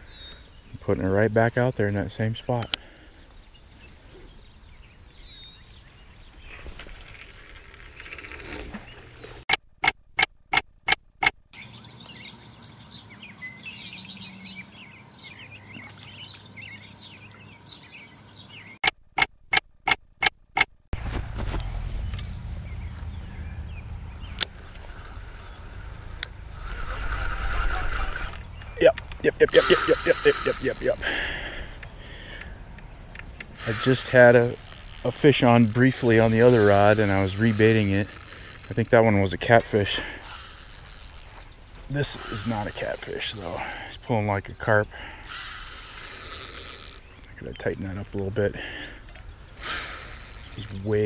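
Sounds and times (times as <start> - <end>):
birds chirping: 0.0 - 10.6, 11.2 - 51.0
sharp evenly spaced clicks: 9.5 - 11.4, 28.1 - 31.2, 45.2 - 47.0
low steady rumble: 21.0 - 30.3.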